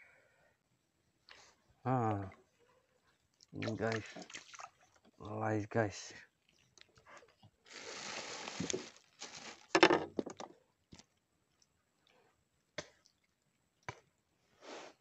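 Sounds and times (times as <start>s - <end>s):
water splashing: 3.5s - 5.2s.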